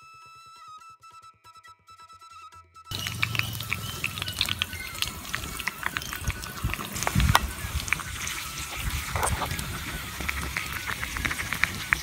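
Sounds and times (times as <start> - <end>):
hot oil sizzling in a pan: 2.9 - 12.0.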